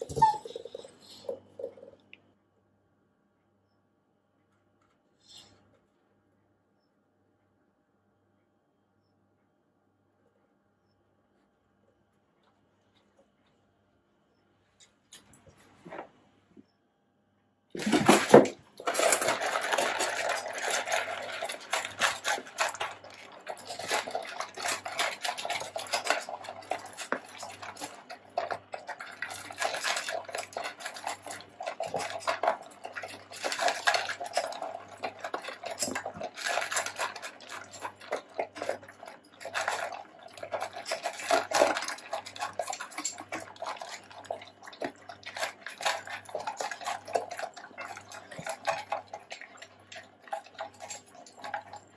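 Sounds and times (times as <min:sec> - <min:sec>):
dogs eating from metal bowls: 0:00.0 - 0:02.0, 0:17.8 - 0:51.9.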